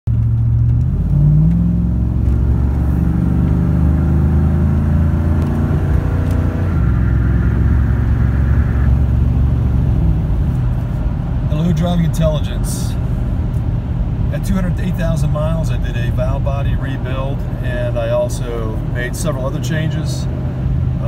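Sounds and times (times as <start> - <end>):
pickup engine revving: 0.1 - 21.0
high whine: 1.9 - 11.6.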